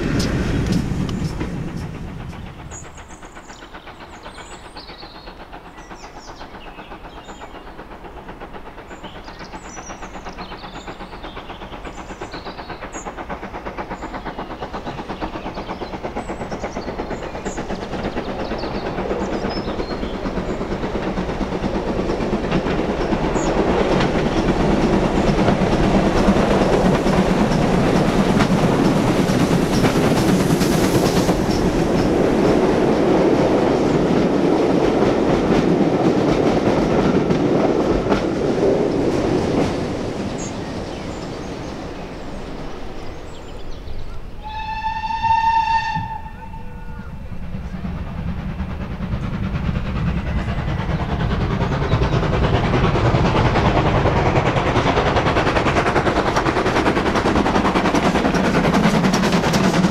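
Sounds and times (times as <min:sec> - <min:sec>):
steam locomotive exhaust: 0:00.0 - 0:59.9
train wheels clattering over rails: 0:00.0 - 0:59.9.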